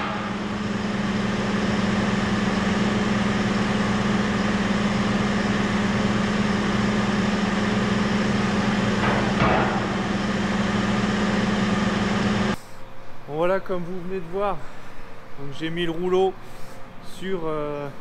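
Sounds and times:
engine humming: 0:00.0 - 0:13.2
metallic knock: 0:09.0 - 0:10.0.

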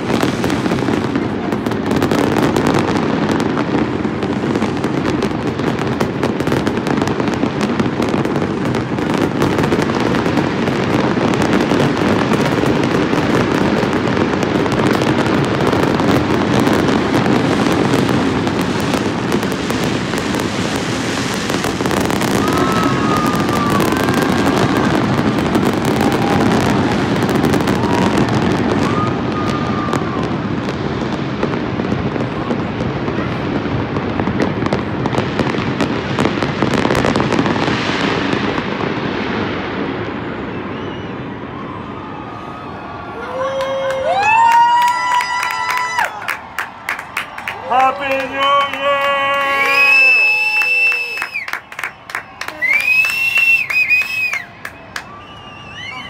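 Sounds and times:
fireworks bangs and crackles: 0:00.0 - 0:56.0
whistling fireworks: 0:00.0 - 0:56.0.

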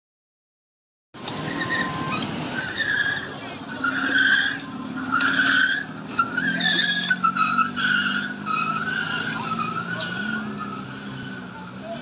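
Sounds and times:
metal scraping on asphalt: 0:01.2 - 0:11.4.

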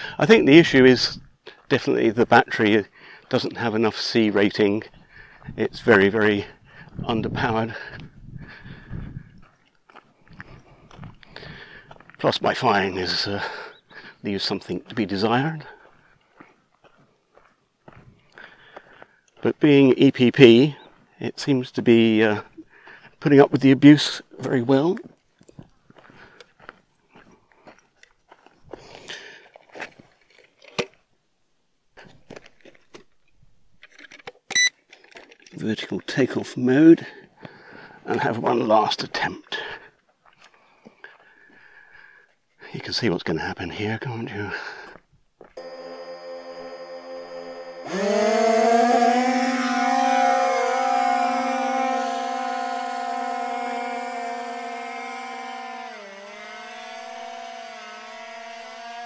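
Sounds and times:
footsteps crunching on sandy ground: 0:09.3 - 0:12.6, 0:14.7 - 0:19.8, 0:24.8 - 0:30.2
short high electronic beep: 0:45.6 - 0:48.0
rc plane propellers whining: 0:45.6 - 0:59.0.

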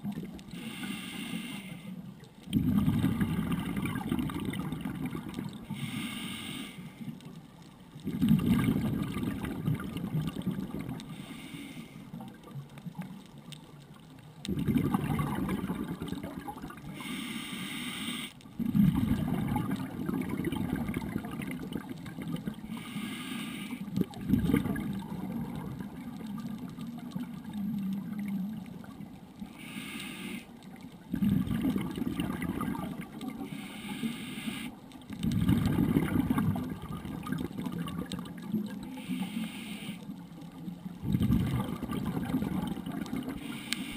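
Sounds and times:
regulator inhale hiss: 0:00.5 - 0:02.1, 0:05.6 - 0:07.2, 0:11.0 - 0:12.2, 0:16.9 - 0:18.4, 0:22.6 - 0:24.0, 0:29.4 - 0:30.6, 0:33.4 - 0:34.9, 0:38.8 - 0:40.2, 0:43.4 - 0:43.9
exhaled bubbles rushing: 0:02.5 - 0:05.7, 0:08.0 - 0:11.1, 0:14.4 - 0:16.9, 0:18.6 - 0:22.7, 0:23.9 - 0:29.2, 0:31.1 - 0:33.5, 0:35.1 - 0:38.9, 0:40.5 - 0:43.6.

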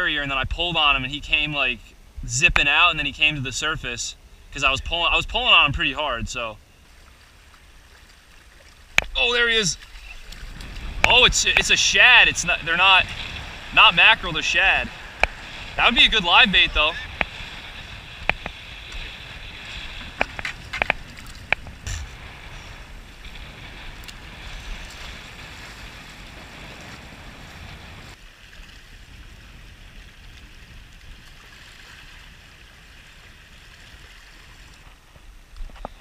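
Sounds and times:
water washing against rocks: 0:08.9 - 0:28.2
wind on microphone: 0:09.0 - 0:36.0.

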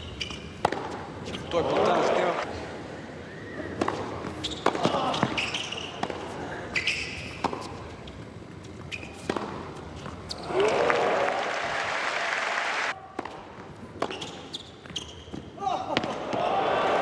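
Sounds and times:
tennis ball bouncing on hard court: 0:00.2 - 0:01.5, 0:03.8 - 0:07.8, 0:08.7 - 0:10.5, 0:13.2 - 0:16.4
crowd cheering and applauding: 0:10.5 - 0:13.0.

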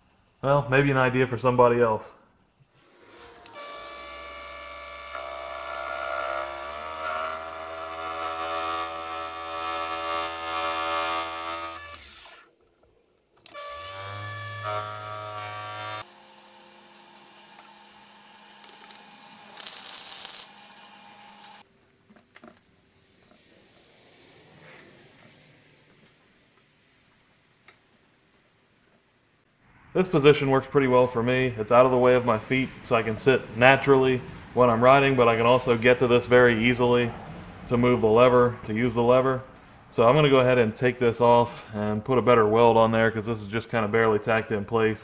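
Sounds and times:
lathe motor humming: 0:13.5 - 0:21.6.

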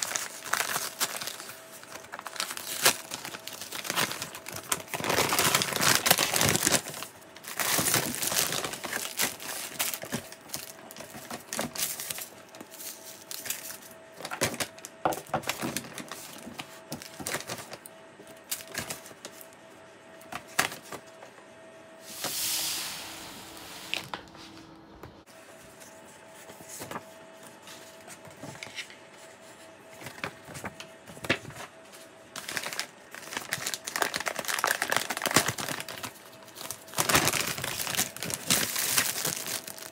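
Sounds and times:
paper and plastic crinkling: 0:00.0 - 0:19.5, 0:25.5 - 0:39.9.

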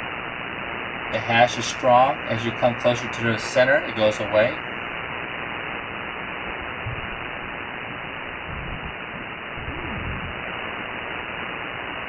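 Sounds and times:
radio static noise: 0:01.1 - 0:12.0.

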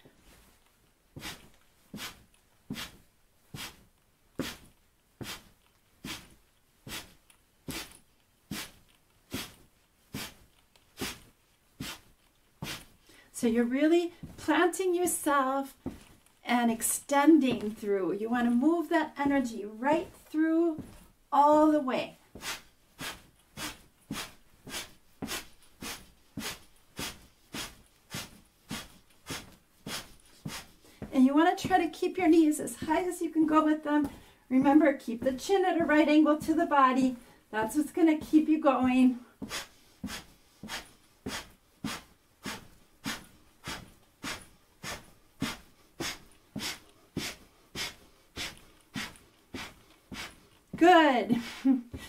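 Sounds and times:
sharp breaths through nose: 0:01.2 - 0:13.4, 0:22.2 - 0:31.1, 0:34.1 - 0:34.5, 0:39.2 - 0:50.8.

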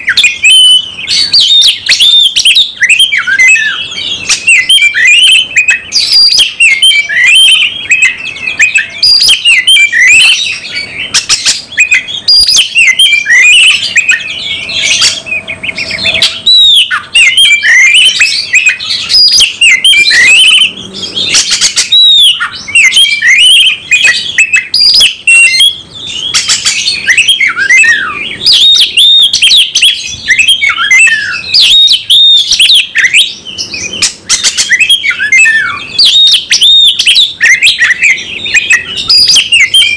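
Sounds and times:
bird singing chirps and whistles: 0:00.0 - 0:39.9.

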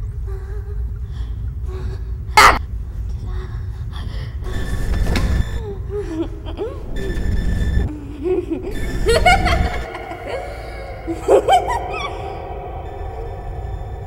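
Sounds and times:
low rumble: 0:00.0 - 0:14.0
woman laughing: 0:05.6 - 0:07.2, 0:07.9 - 0:12.9.

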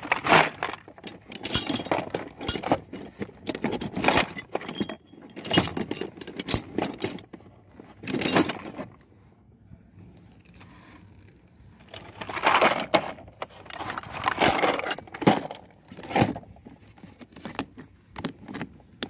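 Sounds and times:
tools clinking in a toolbox: 0:00.0 - 0:09.0, 0:11.8 - 0:18.8.

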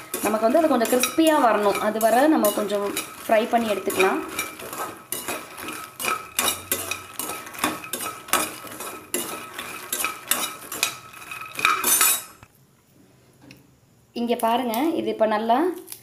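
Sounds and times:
metal spoon scraping a pan: 0:00.0 - 0:12.5.

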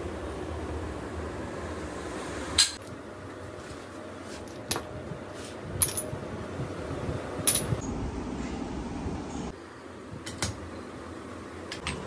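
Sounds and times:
steady background hum: 0:00.0 - 0:12.0
metal tools clinking: 0:05.8 - 0:06.2, 0:07.4 - 0:07.8.

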